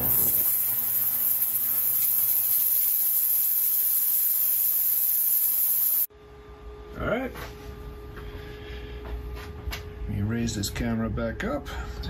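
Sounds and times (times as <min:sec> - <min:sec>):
ultrasonic cleaner hiss: 0:00.0 - 0:06.1.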